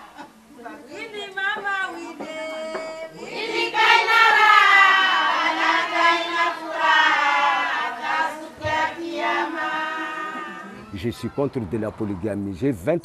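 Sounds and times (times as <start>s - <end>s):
women singing slow song: 1.7s - 10.8s.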